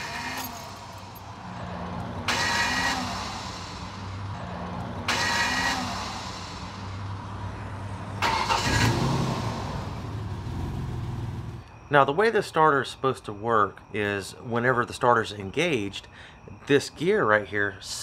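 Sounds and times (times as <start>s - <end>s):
starter motor screeching and grinding: 2.2s - 3.4s.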